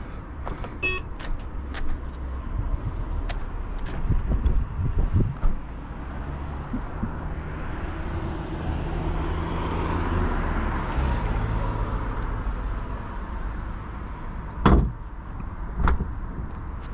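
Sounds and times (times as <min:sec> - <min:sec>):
car trunk lid thud: 0:14.6 - 0:15.0.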